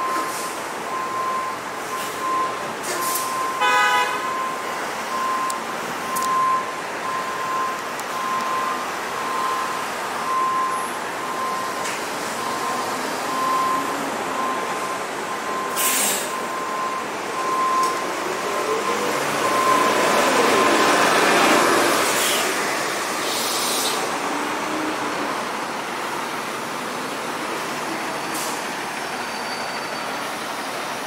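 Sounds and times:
hum of engines and tyres: 0:00.0 - 0:31.0
air brakes hissing: 0:00.1 - 0:00.6, 0:02.8 - 0:03.3, 0:15.6 - 0:16.5, 0:21.9 - 0:24.1, 0:28.2 - 0:30.3.

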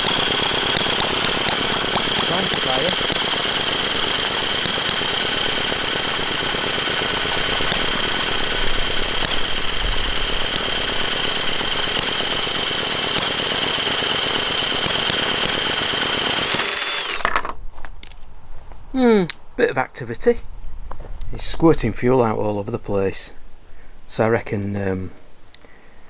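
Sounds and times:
engine clattering trying to fire: 0:00.0 - 0:17.3
cordless drill whining: 0:00.0 - 0:17.4.

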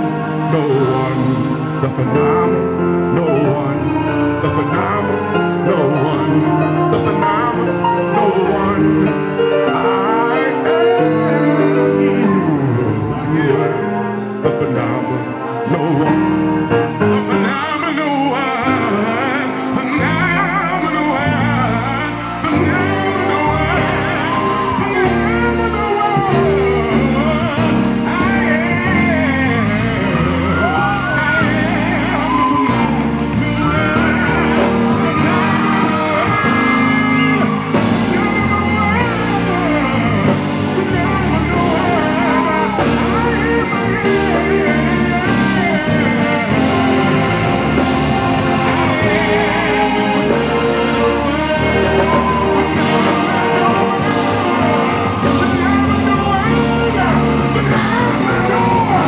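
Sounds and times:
accompanying music: 0:00.0 - 0:59.0
man singing into a microphone: 0:00.0 - 0:59.0
low bass line: 0:19.8 - 0:59.0.

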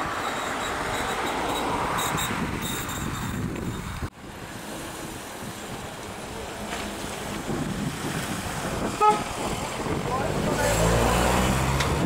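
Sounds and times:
road traffic rumble: 0:00.0 - 0:12.0
vehicle passing by: 0:06.5 - 0:12.0.

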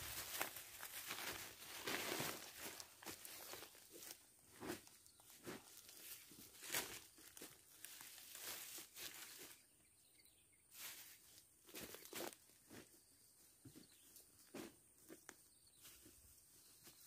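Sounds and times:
plastic and fabric rustling: 0:00.0 - 0:09.5.

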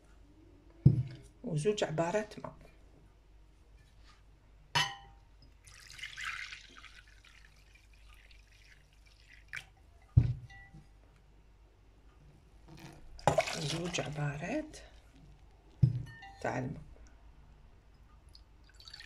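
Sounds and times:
cup set down knock: 0:00.8 - 0:01.2, 0:10.2 - 0:10.5, 0:15.8 - 0:16.2
water pouring: 0:05.5 - 0:09.8, 0:12.9 - 0:14.8, 0:18.3 - 0:19.0.

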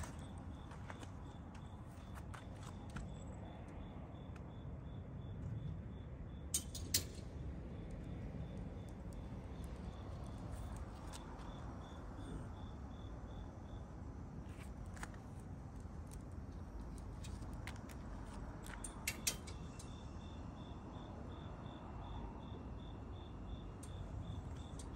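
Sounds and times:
insect chirping: 0:00.0 - 0:24.9
sharp clicks: 0:16.8 - 0:20.0.

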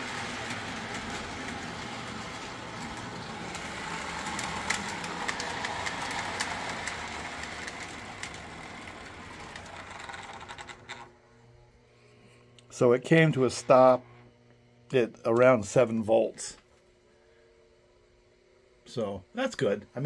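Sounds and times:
model train wheels clicking on rails: 0:00.0 - 0:11.1
faint mains hum: 0:00.0 - 0:20.0.

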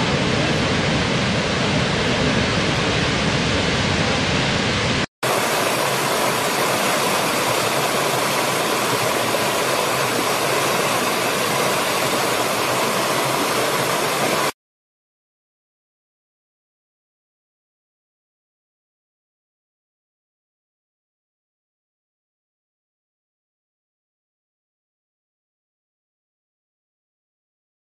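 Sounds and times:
waterfall roaring: 0:00.0 - 0:14.6
stream rushing over rocks: 0:05.0 - 0:14.6.

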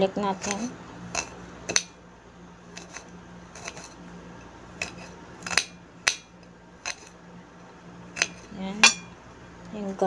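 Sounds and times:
faint steady hum: 0:00.0 - 0:10.0
knife striking ceramic plate: 0:08.2 - 0:09.2.

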